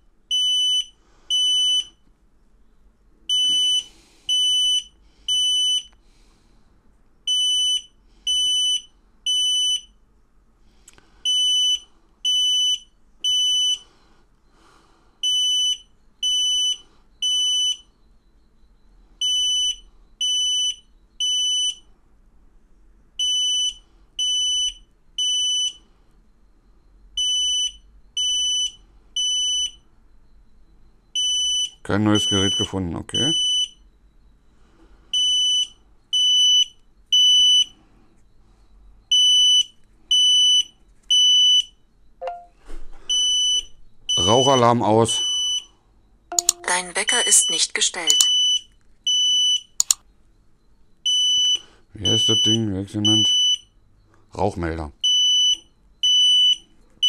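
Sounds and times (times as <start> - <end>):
smoke alarm beeping: 0.3 - 2.0, 3.3 - 6.0, 7.3 - 9.9, 11.2 - 13.8, 15.2 - 18.0, 19.2 - 21.8, 23.2 - 25.8, 27.2 - 29.9, 31.2 - 33.9, 35.2 - 37.7, 39.1 - 50.0, 51.0 - 53.8, 55.0 - 56.7.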